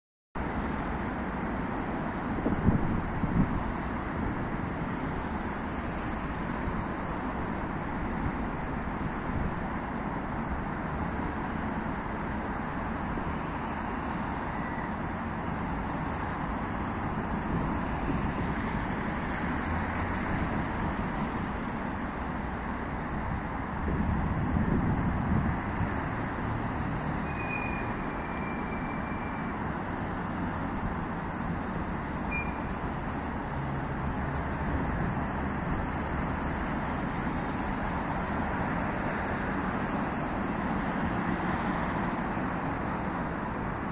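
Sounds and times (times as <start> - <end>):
road traffic: 0.4 - 43.9.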